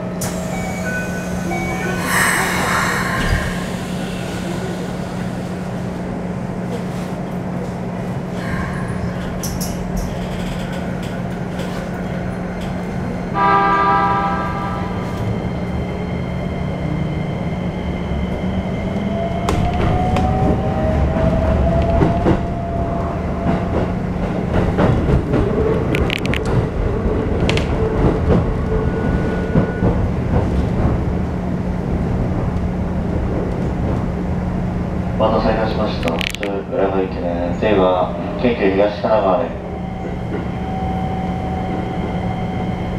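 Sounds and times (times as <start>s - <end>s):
train horn: 13.3s - 15.2s.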